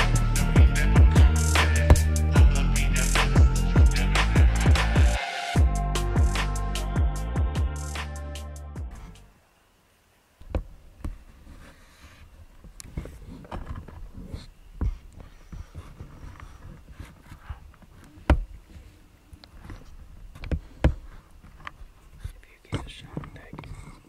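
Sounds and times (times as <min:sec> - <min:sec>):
soft knocks clicks and rustles: 0:12.4 - 0:24.0.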